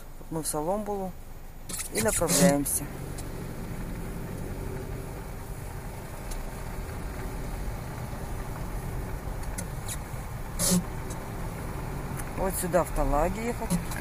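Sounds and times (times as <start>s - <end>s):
car engine and road noise: 0.0s - 14.0s
faint ticks: 3.0s - 10.2s.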